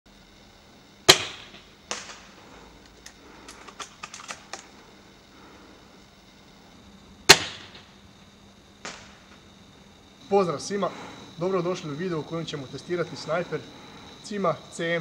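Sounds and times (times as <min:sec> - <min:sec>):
air rifle shot crack: 0:01.1 - 0:02.3, 0:07.3 - 0:07.9, 0:08.8 - 0:09.2
small metallic clicks of rifle bolt: 0:02.9 - 0:04.7
fainter crack: 0:08.8 - 0:09.5.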